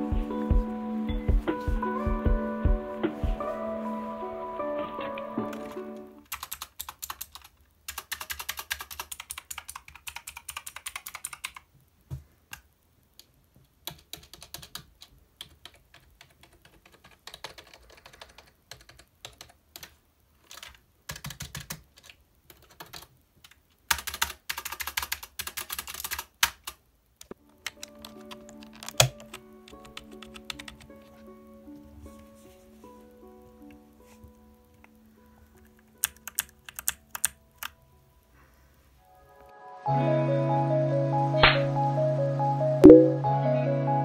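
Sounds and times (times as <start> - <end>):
typing on keyboard: 5.5 - 11.7, 13.8 - 26.8, 27.6 - 30.9, 35.5 - 37.8.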